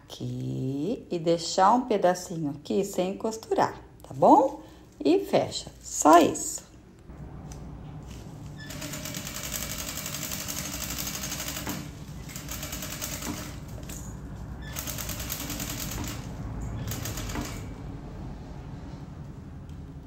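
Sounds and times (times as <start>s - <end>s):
sewing machine stitching: 8.7s - 13.8s, 14.7s - 17.7s.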